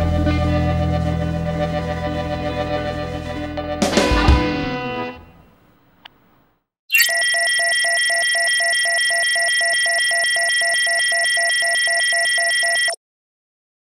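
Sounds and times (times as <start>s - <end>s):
rapid low electronic beeps: 6.9s - 13.0s.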